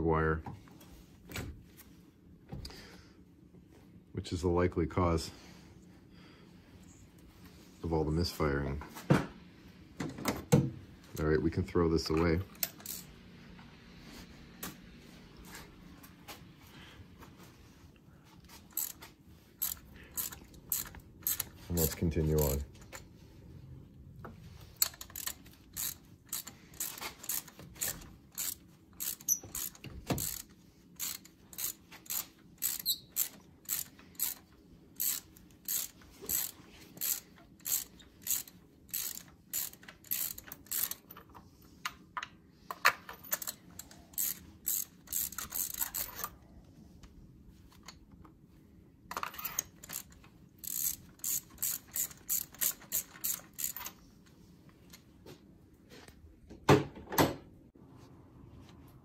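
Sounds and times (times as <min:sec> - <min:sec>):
ratchet clicking: 0:12.6 - 0:13.1, 0:18.7 - 0:19.0, 0:19.6 - 0:22.6, 0:24.8 - 0:41.1, 0:43.2 - 0:46.3, 0:49.4 - 0:54.0.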